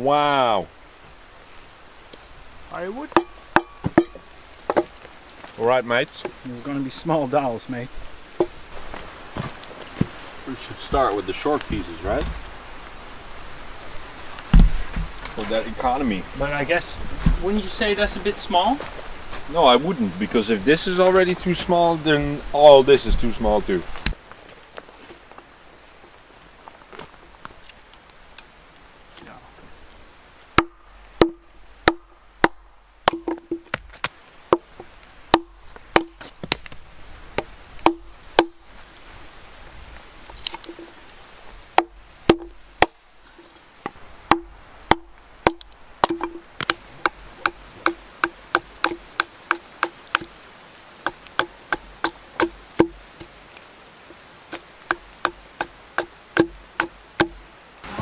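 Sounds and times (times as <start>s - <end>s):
hatchet chopping wood: 3.1s - 5.0s, 30.6s - 36.8s, 37.4s - 38.6s, 41.8s - 43.0s, 44.3s - 50.4s, 51.0s - 53.4s, 54.5s - 57.4s.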